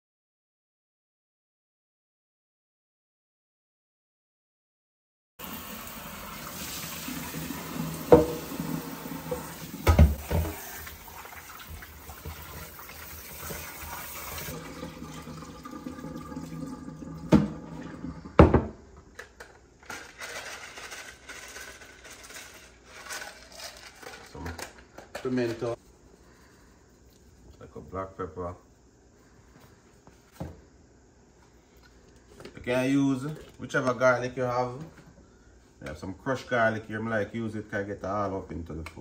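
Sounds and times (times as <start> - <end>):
tap water running into bowl: 5.4 - 18.3.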